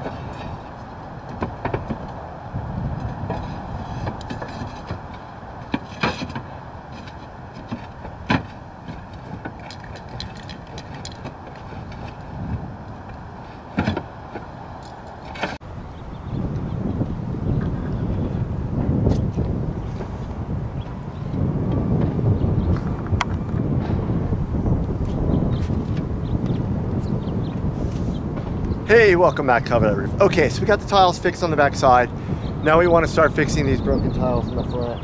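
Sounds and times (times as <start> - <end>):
clay roof tiles clinking: 3.0 - 15.6.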